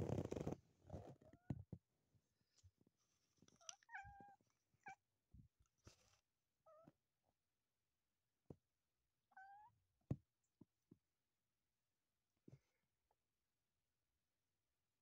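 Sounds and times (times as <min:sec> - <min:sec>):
cat meowing: 0:09.3 - 0:09.7.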